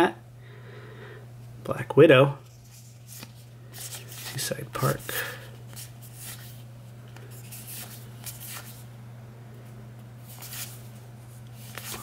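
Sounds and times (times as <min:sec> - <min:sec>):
cards flipping swishes: 0:02.4 - 0:08.8, 0:10.2 - 0:12.0.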